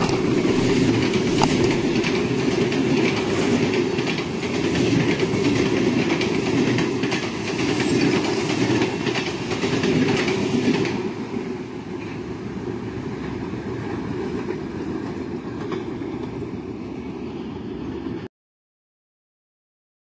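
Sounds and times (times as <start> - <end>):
distant train rumble: 0.0 - 18.2.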